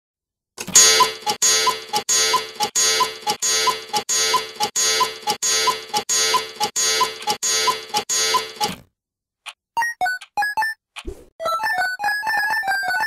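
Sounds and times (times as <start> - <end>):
cuckoo clock calls: 0.8 - 8.8.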